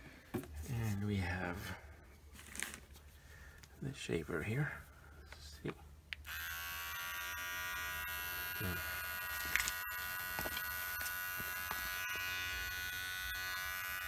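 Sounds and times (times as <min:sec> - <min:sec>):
electric trimmer buzzing: 0:06.2 - 0:14.0.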